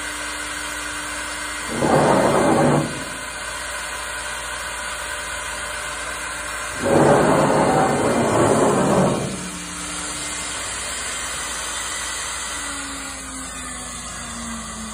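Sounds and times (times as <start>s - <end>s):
cnc router rushing hiss: 0.0s - 14.9s
machine hum with faint tone: 0.0s - 14.9s.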